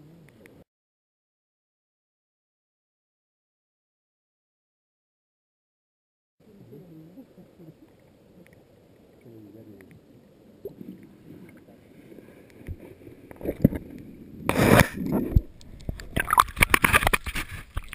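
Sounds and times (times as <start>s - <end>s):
faint clicks: 7.8s - 10.0s
water sloshing and splashing: 10.7s - 17.9s.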